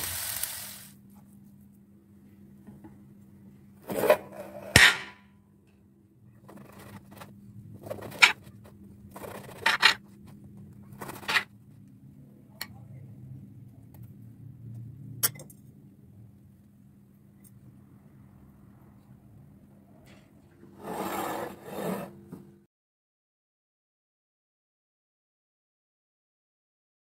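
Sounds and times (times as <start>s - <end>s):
knife rasping through bread crust: 6.4s - 10.0s.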